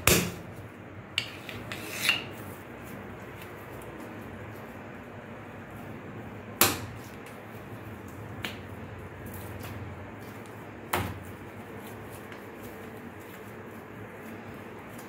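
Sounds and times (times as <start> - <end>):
hands slapping dough: 0.0 - 1.7, 6.5 - 15.0.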